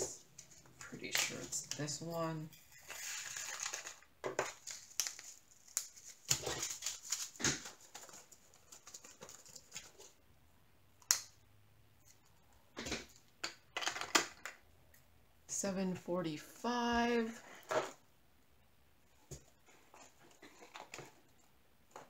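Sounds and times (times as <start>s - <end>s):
plastic bags crinkling: 2.7s - 10.1s.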